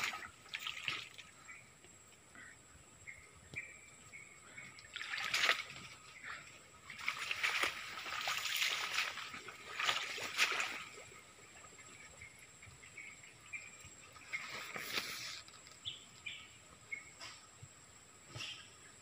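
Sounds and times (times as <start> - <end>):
splashing through wet undergrowth: 0.0 - 1.6, 4.6 - 12.2, 14.2 - 15.9.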